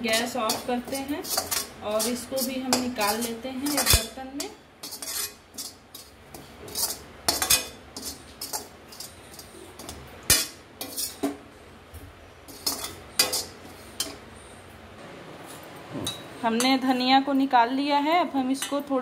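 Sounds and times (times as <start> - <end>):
metal spatula scraping metal pan: 0.0 - 11.4, 12.5 - 14.2.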